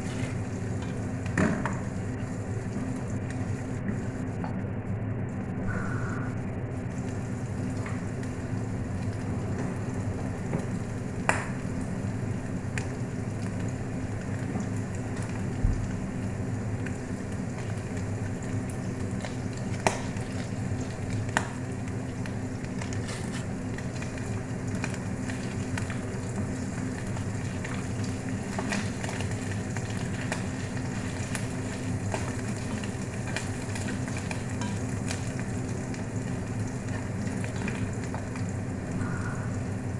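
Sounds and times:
steady low hum: 0:00.0 - 0:39.9
food sizzling in a pot: 0:14.2 - 0:39.9.

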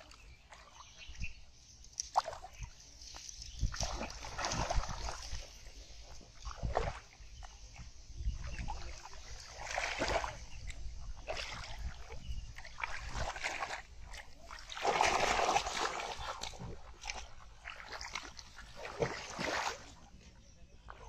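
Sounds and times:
muddy water splashing: 0:00.0 - 0:21.0.

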